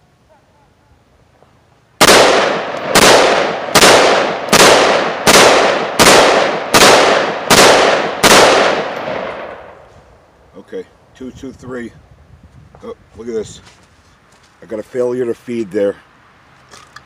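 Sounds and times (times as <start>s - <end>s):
gunshots echoing: 2.0s - 9.8s.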